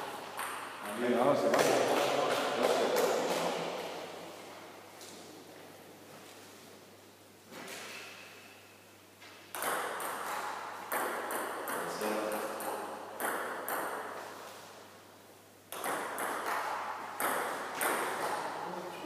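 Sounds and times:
table tennis ball hits: 0:00.4 - 0:00.8, 0:09.5 - 0:14.2, 0:15.7 - 0:18.6.

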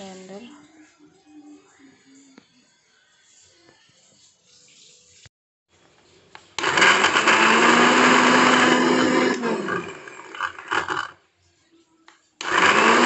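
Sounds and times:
blender motor grinding: 0:06.6 - 0:11.2, 0:12.4 - 0:13.0.

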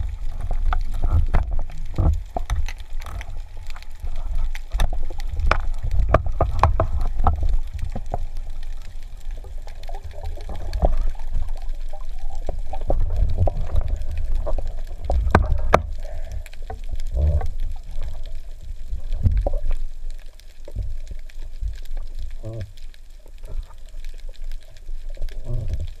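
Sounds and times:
water sloshing and bubbling: 0:00.0 - 0:26.0.

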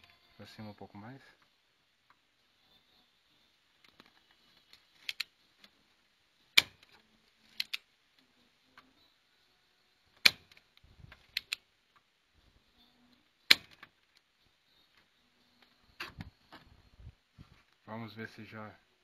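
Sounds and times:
solder sucker snapping: 0:07.6 - 0:07.8, 0:10.2 - 0:10.6.

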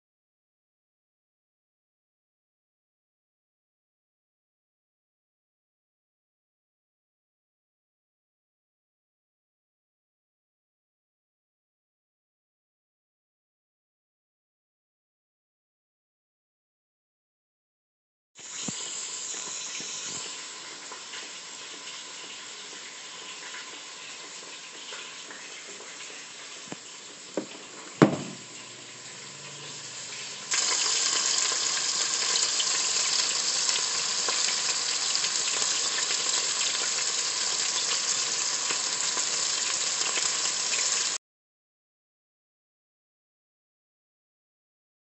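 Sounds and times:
meat sizzling in hot oil: 0:18.4 - 0:41.2
knocks: 0:27.4 - 0:28.5
sharp thump: 0:27.4 - 0:28.5.

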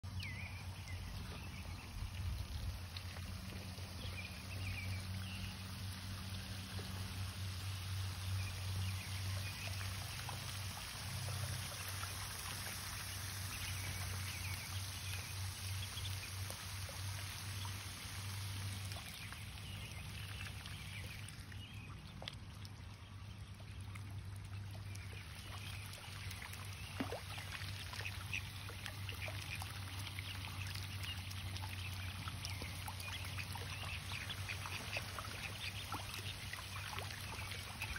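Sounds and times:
water trickling and pouring: 0:00.1 - 0:37.9
ducklings peeping: 0:27.4 - 0:37.9.

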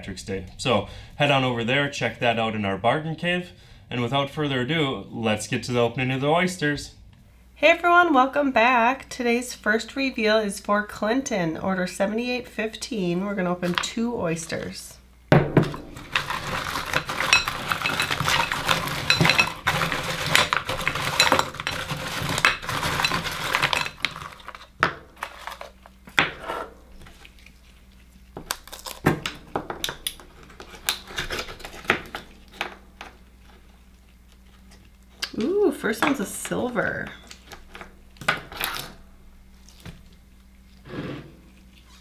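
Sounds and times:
oyster shells clattering on glass: 0:16.2 - 0:19.8.

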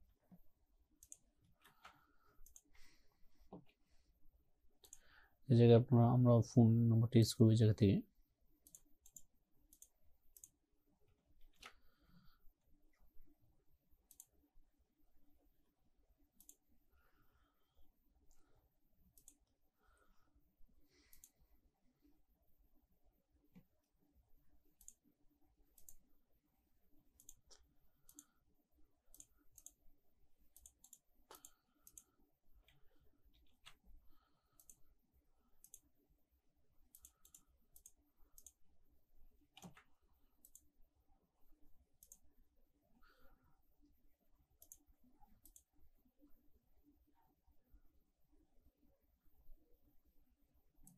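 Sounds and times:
computer mouse clicks: 0:01.0 - 0:02.8, 0:04.8 - 0:05.2, 0:08.6 - 0:10.6, 0:11.4 - 0:12.2, 0:14.0 - 0:14.5, 0:16.3 - 0:16.7, 0:18.3 - 0:19.5, 0:21.0 - 0:21.4, 0:24.7 - 0:25.1, 0:25.7 - 0:26.1, 0:27.1 - 0:28.4, 0:29.0 - 0:29.9, 0:30.5 - 0:34.9, 0:35.6 - 0:36.0, 0:36.8 - 0:38.7, 0:39.4 - 0:40.7, 0:42.0 - 0:42.3, 0:44.4 - 0:45.8.

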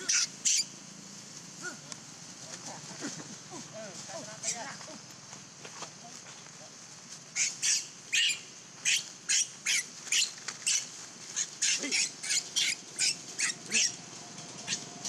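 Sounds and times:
baby monkey squealing: 0:00.0 - 0:00.7, 0:07.4 - 0:14.0.

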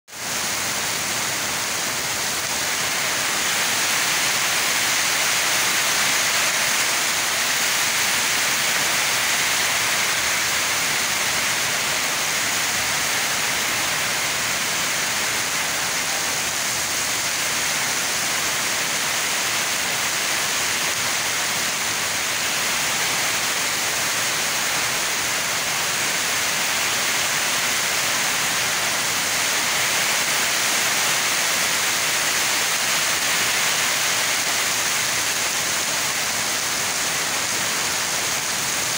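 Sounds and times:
heavy rain on pavement: 0:00.1 - 0:38.9.

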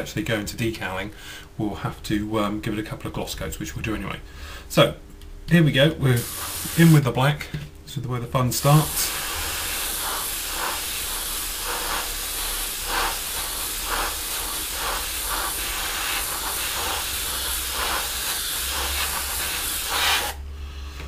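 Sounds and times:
airbrush hissing: 0:06.2 - 0:07.0, 0:08.6 - 0:20.4.

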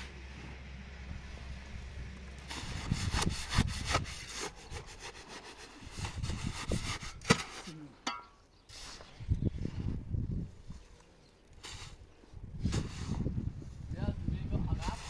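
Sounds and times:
hand tool scraping: 0:02.4 - 0:09.1.

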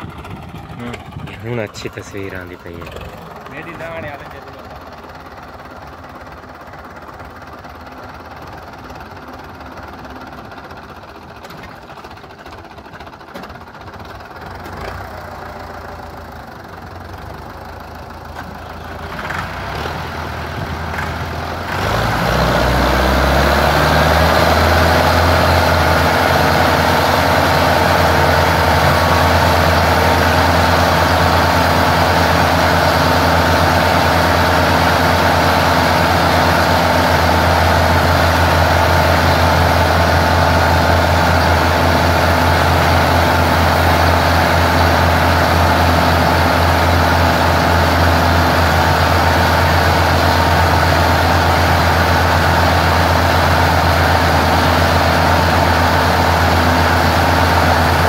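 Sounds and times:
tractor diesel engines revving: 0:00.0 - 0:58.0.

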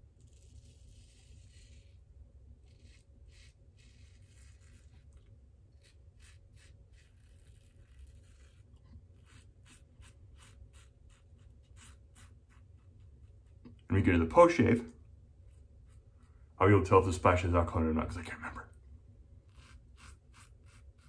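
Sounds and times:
razor scraping stubble: 0:00.2 - 0:13.9, 0:19.4 - 0:21.0.

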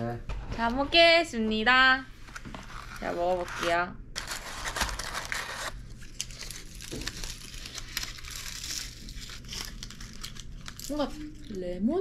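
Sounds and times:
paper packaging rustling: 0:02.2 - 0:11.4
pastry crunching: 0:04.2 - 0:11.5.

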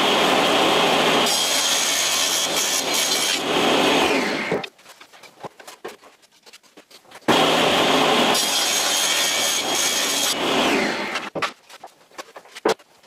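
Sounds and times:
table saw ripping board: 0:00.9 - 0:04.7, 0:07.3 - 0:12.8.

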